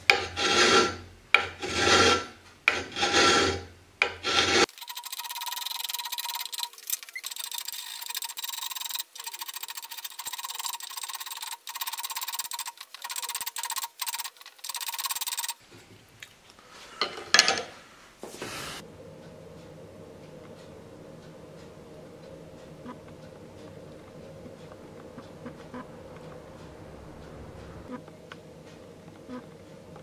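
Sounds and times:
scrape or knock: 0.0 - 4.7, 18.2 - 18.8
hand file rasping on metal: 0.0 - 6.7
faint steady hum: 0.0 - 30.0.

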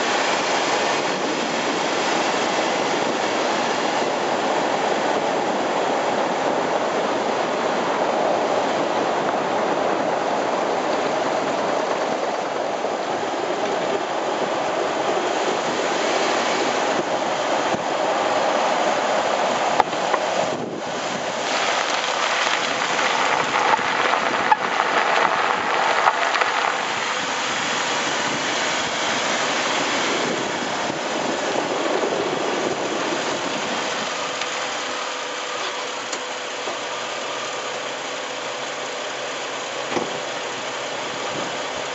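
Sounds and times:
road and tyre noise: 0.0 - 41.9
suspension rattling: 6.6 - 36.0.

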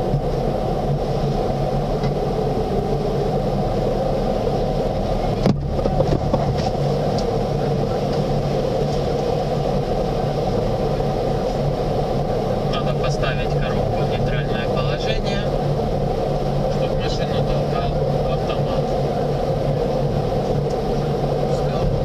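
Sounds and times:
car wash machinery hum: 0.0 - 22.0.

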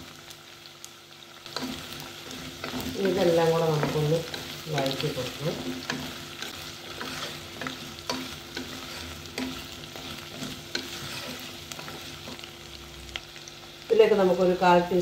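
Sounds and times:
vegetables sizzling in hot oil: 0.0 - 15.0
spatula scraping a pot: 1.5 - 12.5.

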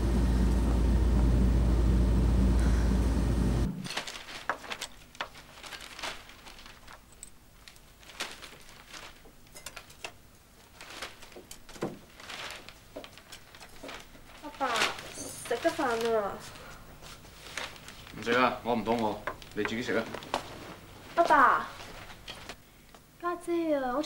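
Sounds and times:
loud low rumble: 0.0 - 3.8
tableware clicks and knocks: 9.5 - 10.2.

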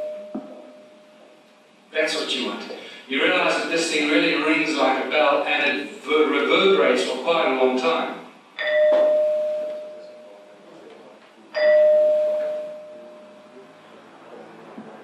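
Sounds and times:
ringing stone struck: 0.0 - 1.0.

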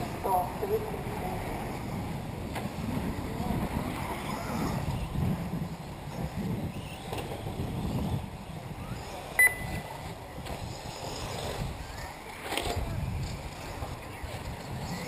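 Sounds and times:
faint remote-control cars running: 0.0 - 15.0
wind noise on microphone: 0.0 - 15.0
high electronic beep: 9.4 - 9.8.

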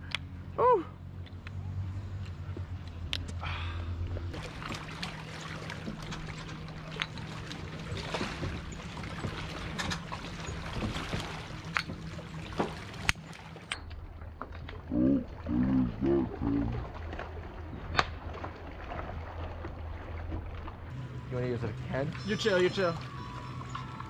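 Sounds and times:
steady low hum: 0.0 - 24.0
waves lapping on rocky shore: 4.3 - 13.7.

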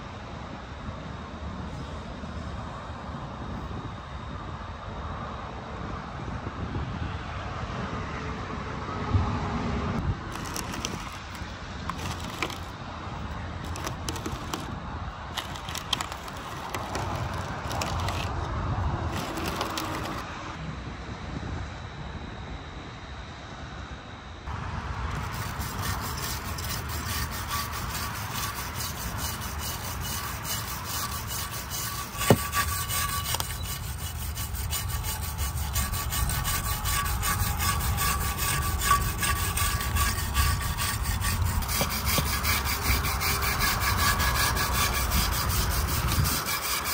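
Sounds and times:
abrasive rasping and rubbing: 10.3 - 12.8, 13.6 - 18.5, 19.1 - 20.3, 25.1 - 46.9.

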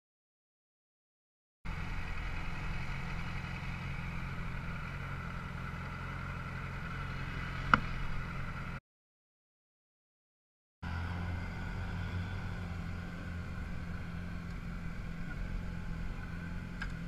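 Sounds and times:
motorcycle engine running: 1.7 - 8.8, 10.8 - 17.0.

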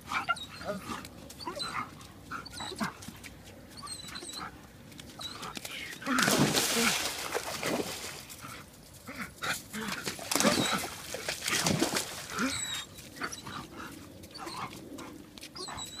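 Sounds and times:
dogs whining and yelping: 0.0 - 3.1, 3.7 - 4.6, 5.2 - 6.2, 10.3 - 11.0, 12.3 - 16.0.

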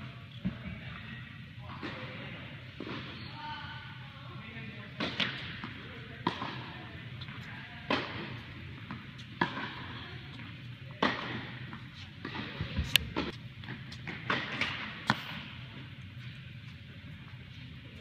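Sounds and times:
tennis balls hit with racquets: 4.9 - 15.9.

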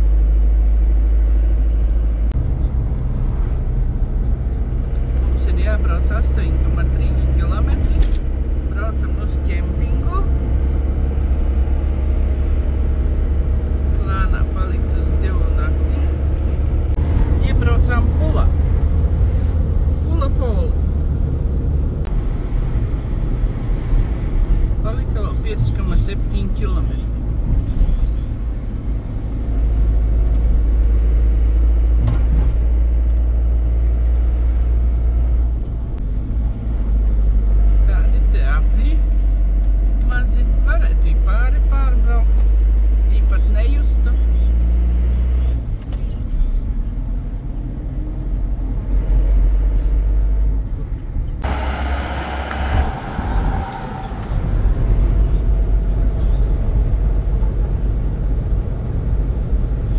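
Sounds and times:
vehicle engine and road rumble: 0.0 - 59.9
sudden rushing sound: 16.0 - 20.0, 51.4 - 57.7.

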